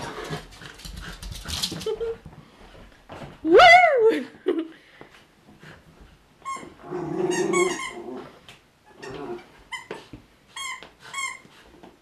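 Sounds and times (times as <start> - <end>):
puppy growling: 6.8 - 9.5.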